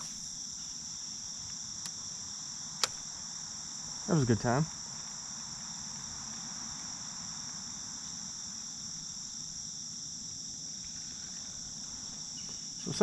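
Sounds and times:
high-pitched insect chorus: 0:00.0 - 0:13.0.

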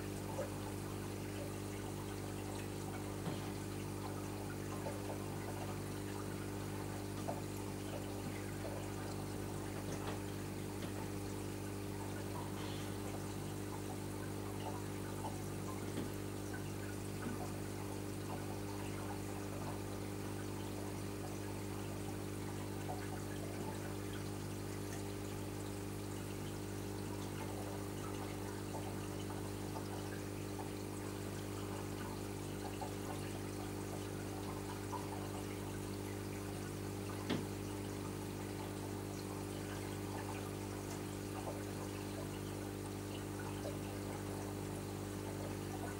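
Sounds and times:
aquarium pumps humming: 0:00.0 - 0:45.9
water trickling and splashing: 0:00.0 - 0:45.9.

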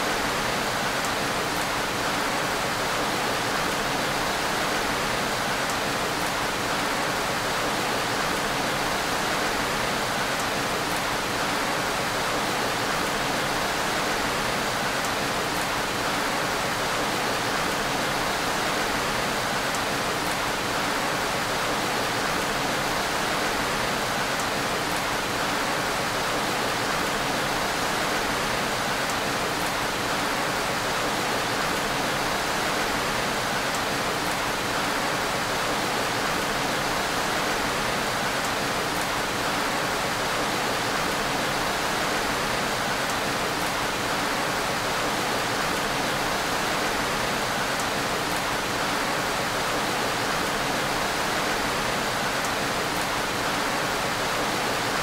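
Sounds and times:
faint raindrop ticks: 0:05.3 - 0:06.4.

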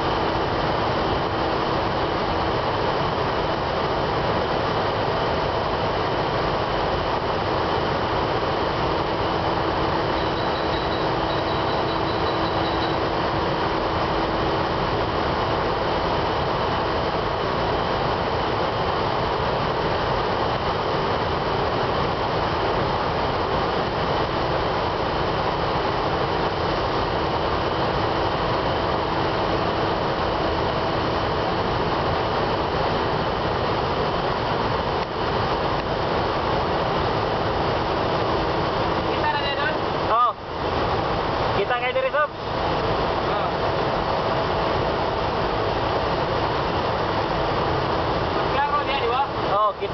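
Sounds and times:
burner rushing noise: 0:00.0 - 0:49.9
constant hum: 0:00.0 - 0:49.9.

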